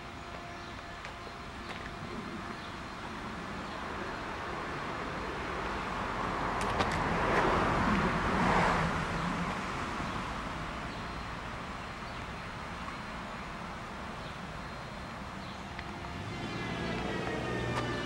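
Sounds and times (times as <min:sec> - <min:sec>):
car passing by: 0:03.6 - 0:11.1, 0:15.6 - 0:18.0.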